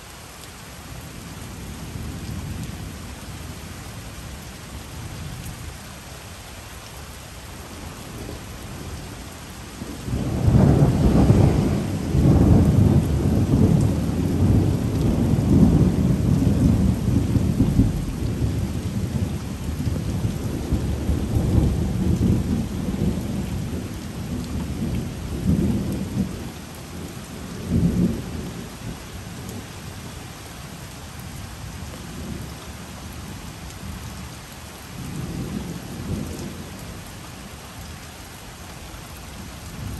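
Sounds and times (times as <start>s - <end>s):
steady rain: 0.0s - 39.9s
thunder rolling: 10.1s - 19.3s.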